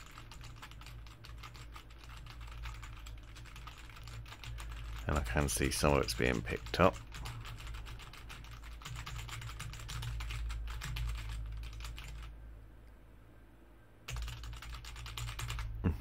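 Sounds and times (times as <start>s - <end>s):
typing on computer keyboard: 0.0s - 12.3s, 14.1s - 15.7s
low steady hum: 0.0s - 16.0s.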